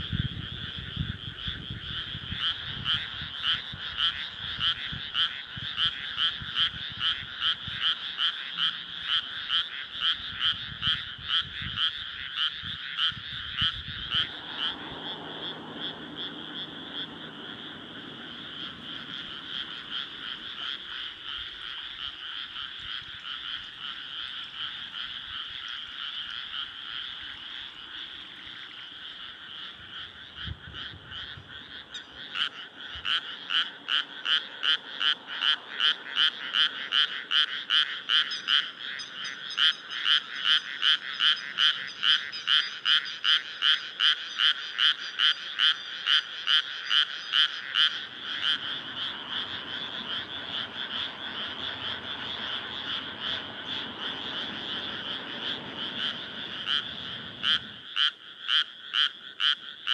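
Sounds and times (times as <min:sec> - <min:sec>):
chorus of frogs calling: 0:00.0 - 0:59.9
nearby frog croaking rapidly: 0:00.0 - 0:59.9.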